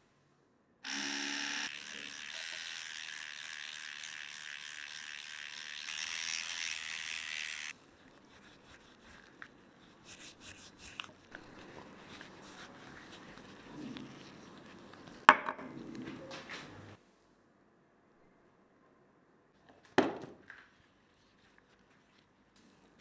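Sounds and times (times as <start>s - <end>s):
electric toothbrush buzzing: 0.8s - 7.8s.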